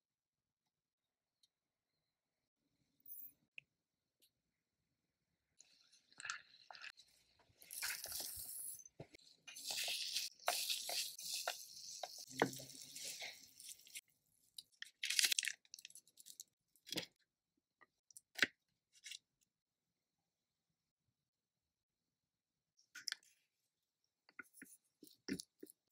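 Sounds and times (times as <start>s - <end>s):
puffed grains rustling and scraping: 7.6s - 8.9s, 9.5s - 14.0s.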